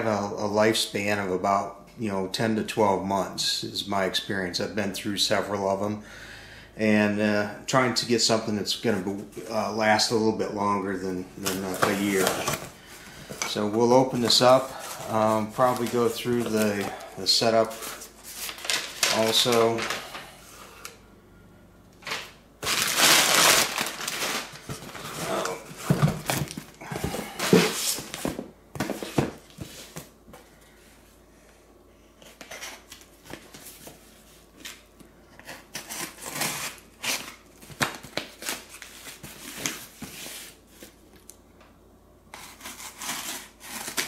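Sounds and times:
packing paper crumpling: 14.2 - 20.2, 22.6 - 27.4.

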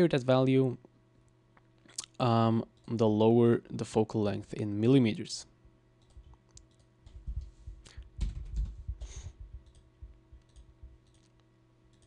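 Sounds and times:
faint electrical hum: 0.0 - 12.0
computer mouse clicks: 6.0 - 7.2, 9.6 - 12.0.

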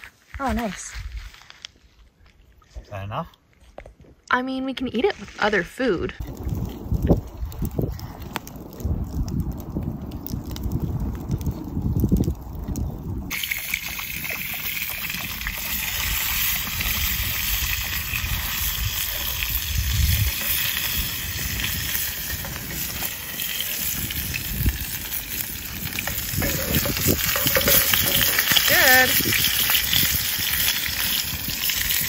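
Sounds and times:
low rumbling on microphone: 6.2 - 13.4, 16.6 - 31.6
fish sizzling in a pan: 13.3 - 32.0.

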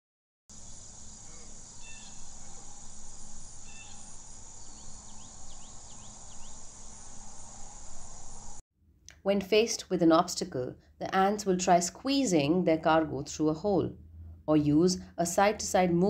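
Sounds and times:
high-pitched insect buzz: 0.5 - 8.6
faint chirps: 0.6 - 8.6.

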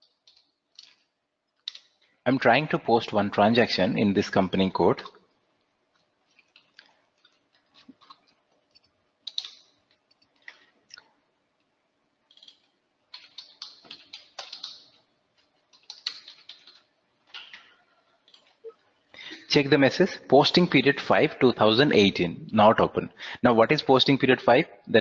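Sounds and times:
faint keyboard typing: 0.0 - 2.2, 4.9 - 19.4.

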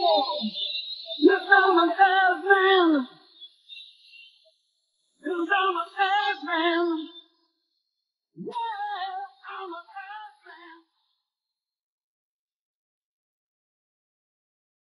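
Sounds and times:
person singing unaccompanied: 0.0 - 3.3, 5.2 - 7.2, 8.4 - 10.9.

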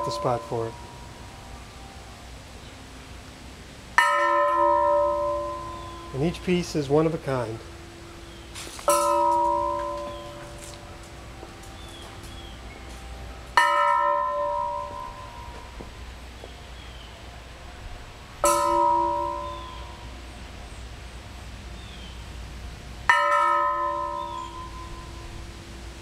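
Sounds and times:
steel bell clanging and ringing: 0.0 - 1.1, 4.0 - 15.8, 18.4 - 20.1, 23.1 - 25.4.

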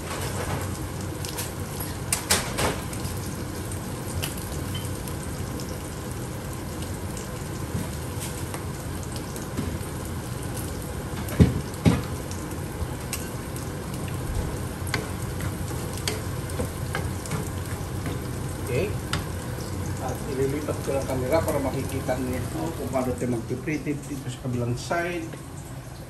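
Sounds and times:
fish frying in pans: 0.0 - 26.0
wooden spatula stirring in pan: 14.5 - 23.6.

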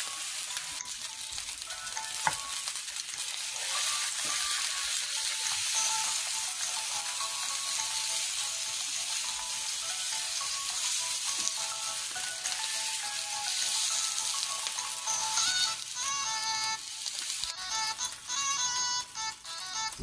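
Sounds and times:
meat sizzling in a frying pan: 0.0 - 19.4.

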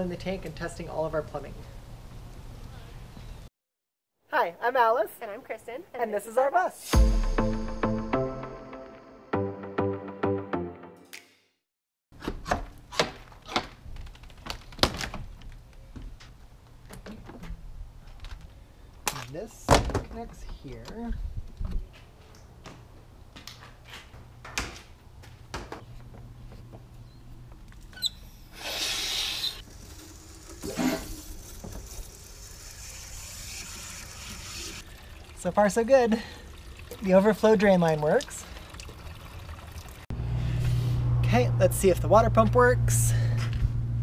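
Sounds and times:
water hissing through hose: 28.5 - 39.1
low steady rumble: 39.9 - 44.0.

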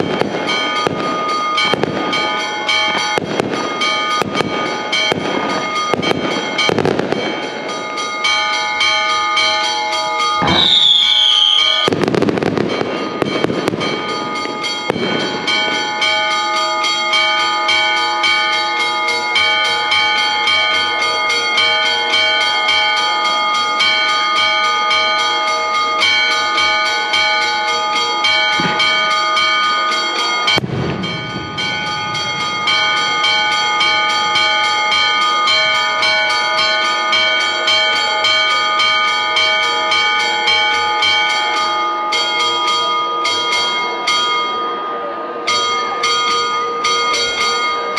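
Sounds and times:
firework bangs and crackling: 0.0 - 8.9, 10.4 - 16.4, 28.4 - 29.2, 30.4 - 34.4
church bells pealing: 0.0 - 47.9
falling whistle: 10.4 - 11.9.

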